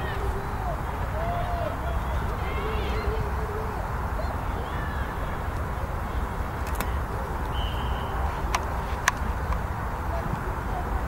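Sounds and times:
low crowd rumble: 0.0s - 11.0s
players shouting: 0.0s - 11.0s
referee's whistle blast: 7.5s - 8.3s.

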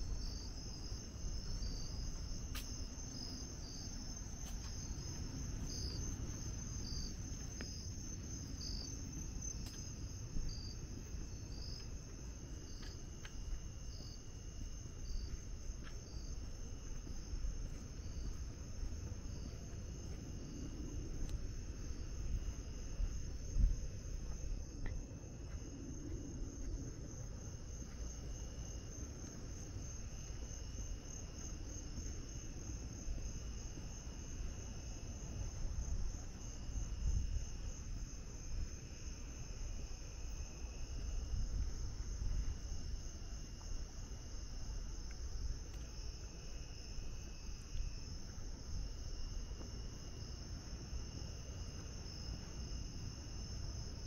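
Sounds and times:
crickets trilling: 0.0s - 54.0s
lower insect call: 0.0s - 54.0s.

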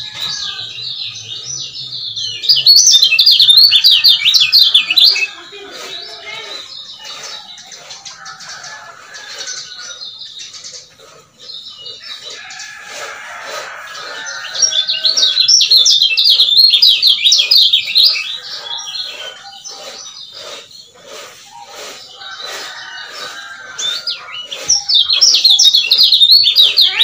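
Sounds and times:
bird chattering song: 0.0s - 27.0s.

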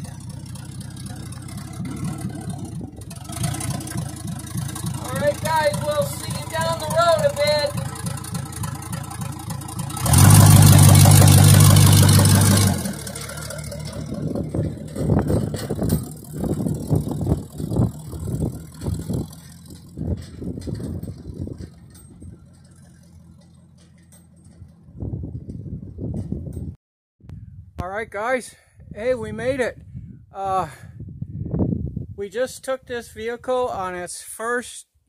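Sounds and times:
truck engine revving: 0.0s - 26.3s
truck driving over rough ground: 0.0s - 26.8s.

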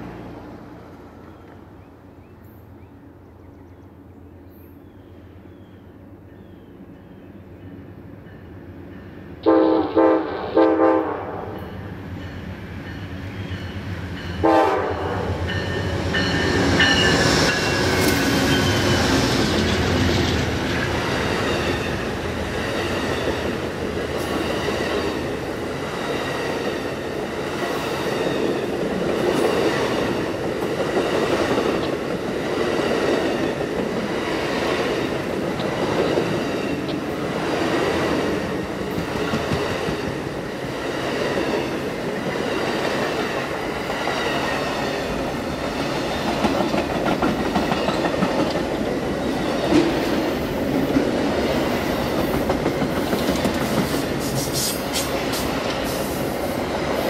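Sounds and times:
train horn blasts: 9.4s - 11.8s, 14.4s - 15.9s
locomotive engine and wheel noise: 11.6s - 57.0s
wheels clacking over rail joints: 41.0s - 56.0s.

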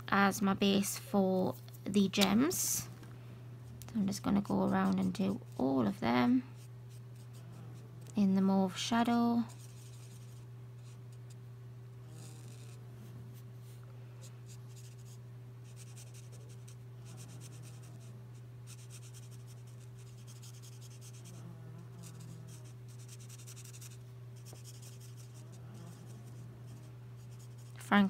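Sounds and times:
steady low hum: 0.0s - 28.0s
marker scratching on paper: 9.5s - 11.0s, 12.2s - 12.8s, 14.5s - 18.1s, 18.7s - 21.4s, 22.0s - 27.8s.

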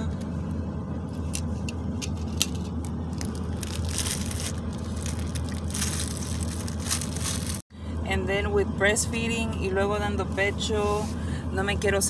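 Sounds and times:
car interior hum: 0.0s - 12.0s
plastic wrapping crinkling: 3.1s - 7.6s.

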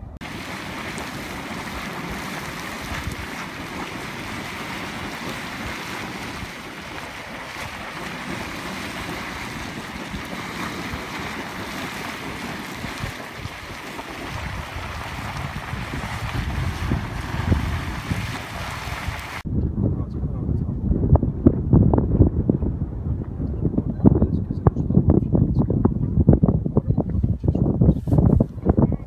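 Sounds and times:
wind buffeting microphone: 0.0s - 29.0s
boiling water splashing: 0.2s - 19.5s.

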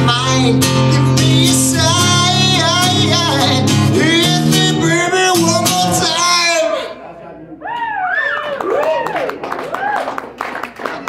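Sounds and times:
acoustic guitar strumming: 0.0s - 6.9s
man singing into a microphone: 0.0s - 7.0s.

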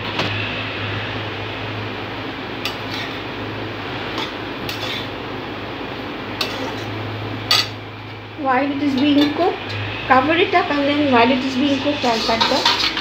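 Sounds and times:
metal spatula scraping a wok: 2.7s - 3.2s, 4.1s - 5.2s, 6.4s - 6.9s, 10.7s - 13.0s.

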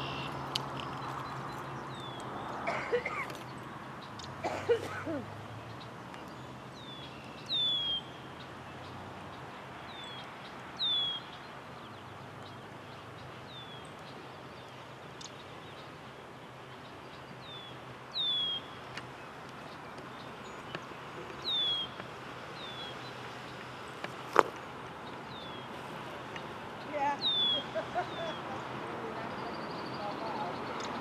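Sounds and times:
bird whistled call: 7.5s - 8.1s, 18.1s - 18.7s, 27.2s - 27.8s.

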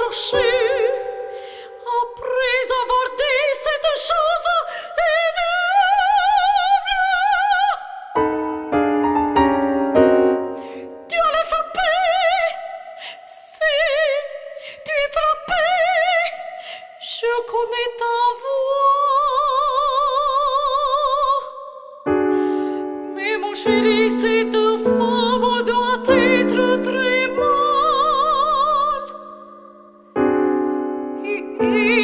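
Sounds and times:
piano chords: 0.0s - 2.4s, 8.2s - 11.5s, 22.1s - 32.0s
operatic soprano singing: 0.0s - 8.2s, 10.8s - 22.0s, 22.8s - 30.0s, 31.2s - 32.0s.

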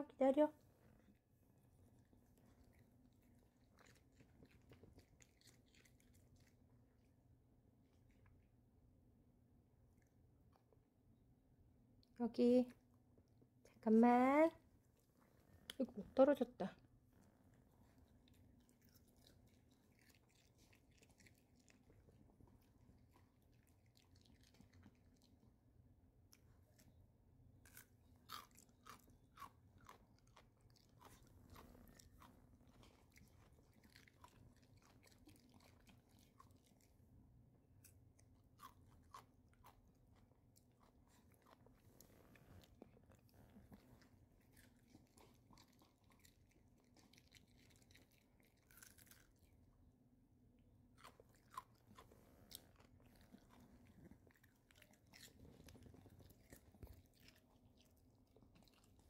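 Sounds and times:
dog crunching cucumber: 1.9s - 7.3s, 17.6s - 25.6s, 26.2s - 49.7s, 50.9s - 59.0s.

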